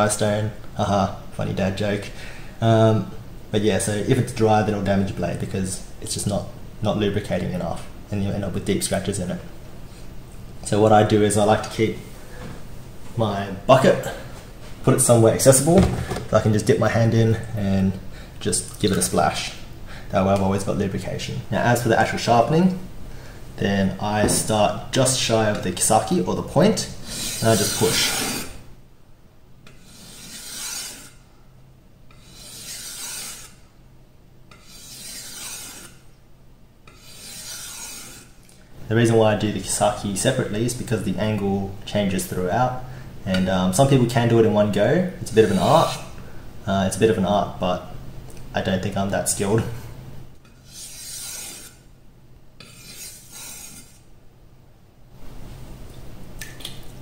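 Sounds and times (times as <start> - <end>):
blade sharpening on whetstone: 29.7 - 31.2, 32.2 - 33.6, 34.5 - 36.0, 36.9 - 38.3, 50.6 - 51.8, 52.6 - 54.0.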